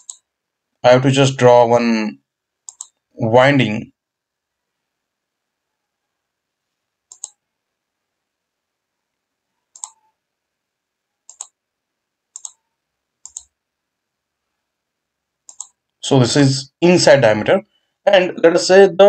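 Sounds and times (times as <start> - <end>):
mouse button clicking: 0.0 - 0.2, 7.1 - 7.4, 9.7 - 10.1, 12.4 - 13.5.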